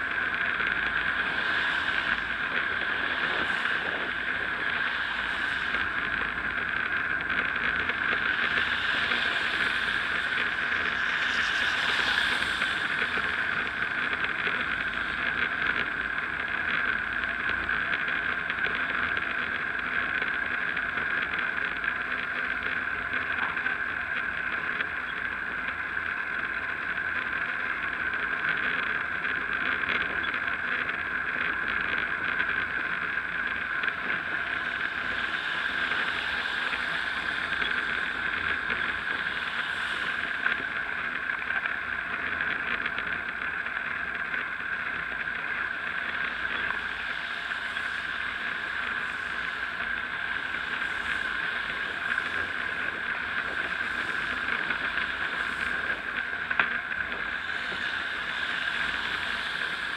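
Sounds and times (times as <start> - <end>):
tyre hiss on wet tarmac: 0.0 - 19.8, 32.3 - 59.9.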